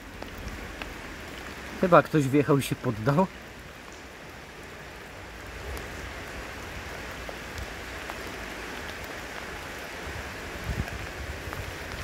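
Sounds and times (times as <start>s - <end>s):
raindrop ticks: 0.0s - 10.0s, 10.6s - 12.0s
heavy rain on floodwater: 0.0s - 12.0s.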